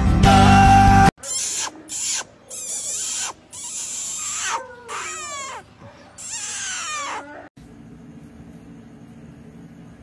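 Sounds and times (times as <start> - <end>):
puppy whining: 1.2 - 7.5.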